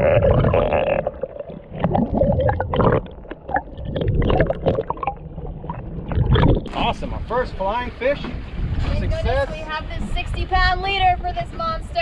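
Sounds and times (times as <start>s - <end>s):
muffled underwater gurgling: 0.0s - 7.2s.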